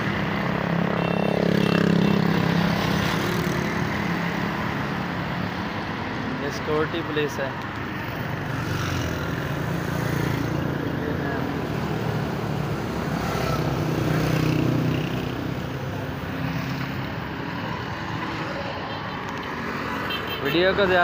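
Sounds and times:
passing cars and motorcycles: 0.0 - 21.0.

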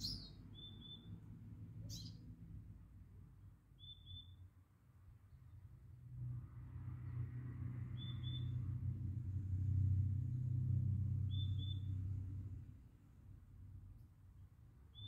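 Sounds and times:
bird double chirps: 0.0 - 1.1, 3.8 - 4.4, 11.3 - 11.9.

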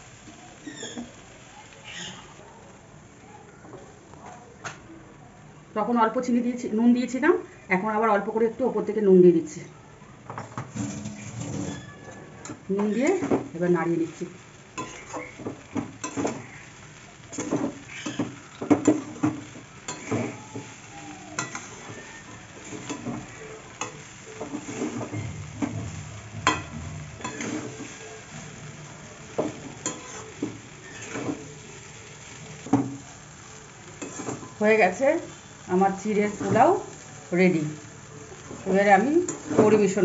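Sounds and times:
frying sizzle: 0.0 - 40.0
metal spatula scraping pan: 10.6 - 13.4, 14.8 - 16.5, 19.9 - 20.4, 21.4 - 31.5, 34.0 - 34.6.

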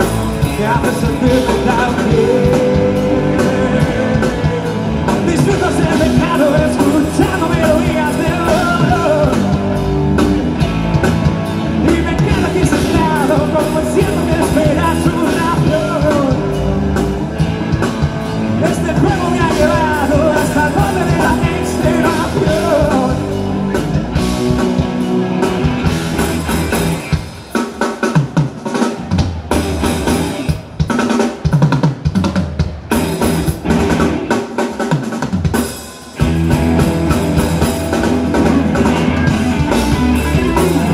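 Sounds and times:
live rock band: 0.0 - 40.9
person singing: 0.3 - 9.8, 11.7 - 17.0, 18.6 - 23.8.

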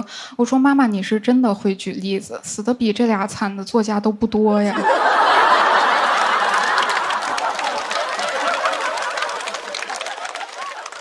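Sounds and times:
audience laughing: 4.7 - 11.0
audience clapping: 4.8 - 11.0.

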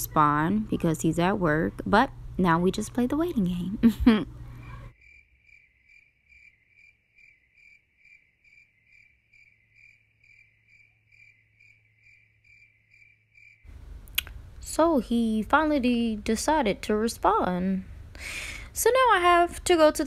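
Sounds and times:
cricket chirping: 5.0 - 13.7.

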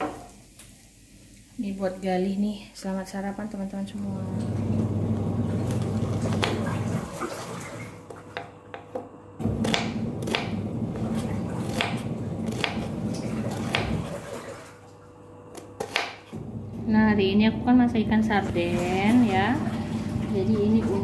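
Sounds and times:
washing machine motor hum: 0.0 - 21.0
knife slicing onion on board: 5.6 - 6.8, 8.3 - 14.1, 15.5 - 16.3.

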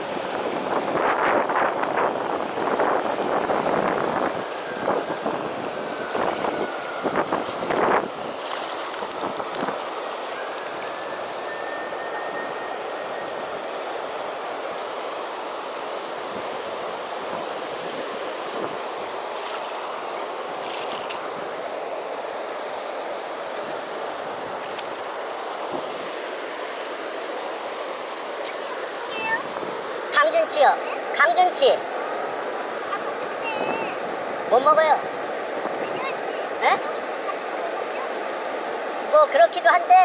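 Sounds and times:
river water rushing over weir: 0.0 - 40.0.

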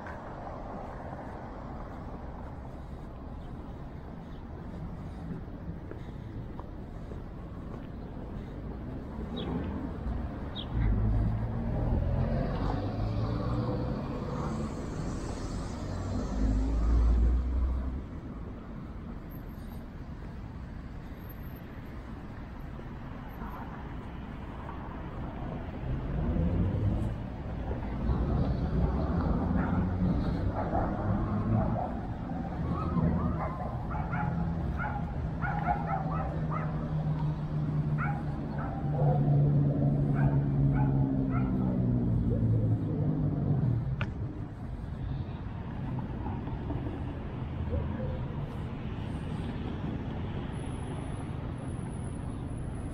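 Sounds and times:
traffic background noise: 0.0 - 52.9
vehicle engine passing: 10.6 - 18.0, 25.7 - 44.9
dog barking in high yaps: 32.8 - 36.7.

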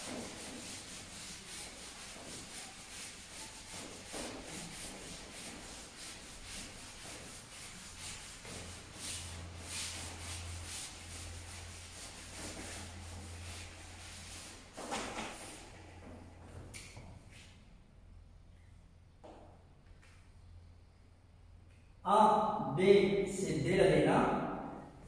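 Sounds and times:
eraser wiping a whiteboard: 0.0 - 15.8.

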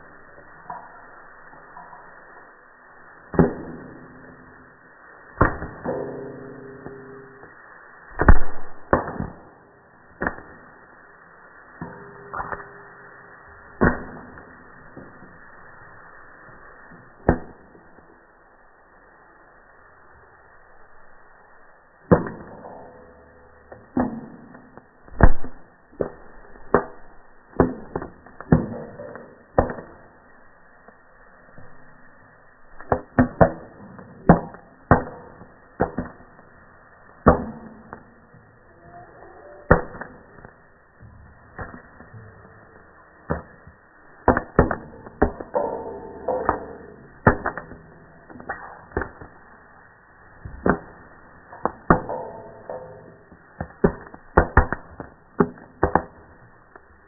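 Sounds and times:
popcorn kernels popping in a pot: 51.5 - 56.2.

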